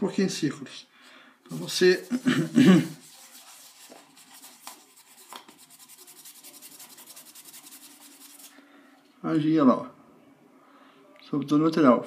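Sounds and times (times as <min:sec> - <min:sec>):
cloth scrubbing plastic: 0:01.5 - 0:08.6.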